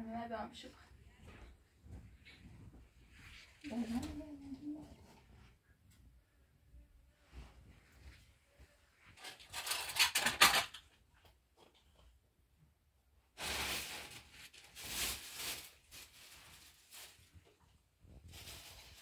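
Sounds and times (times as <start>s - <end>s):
rustling and knocking handling noise: 1.2s - 4.2s.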